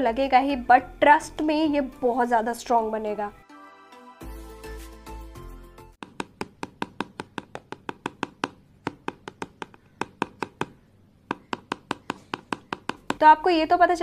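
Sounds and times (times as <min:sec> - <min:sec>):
background music: 0:00.0 - 0:06.0
fake nail tapping hard surface: 0:06.0 - 0:13.3.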